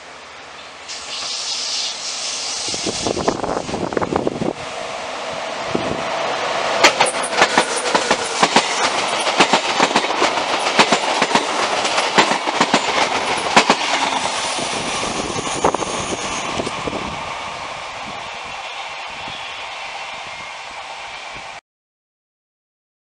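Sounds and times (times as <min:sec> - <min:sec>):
train wheels rumbling on rail: 0:00.0 - 0:21.6
wheels clicking over rail joints: 0:06.8 - 0:14.2.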